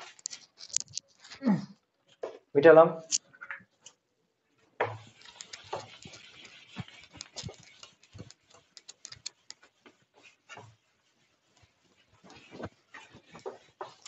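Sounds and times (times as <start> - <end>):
eraser rubbing on whiteboard: 4.8 - 14.0.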